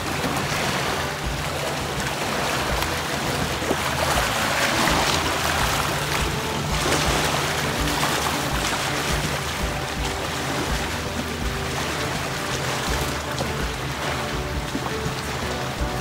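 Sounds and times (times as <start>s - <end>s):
background music: 0.0s - 16.0s
waves lapping on shore: 0.0s - 16.0s.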